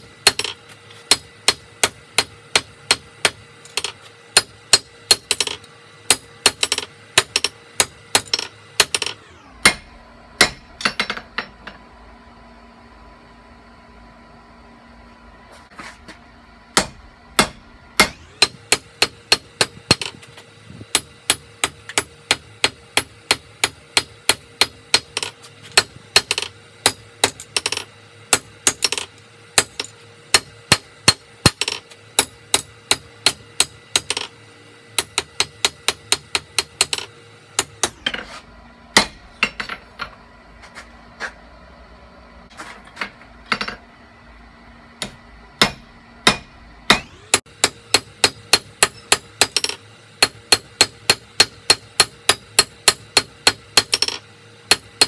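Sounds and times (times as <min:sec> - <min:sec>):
hammer striking hot steel on anvil: 0:00.0 - 0:11.8, 0:16.7 - 0:34.3, 0:34.9 - 0:38.3, 0:38.9 - 0:40.1, 0:45.0 - 0:55.0.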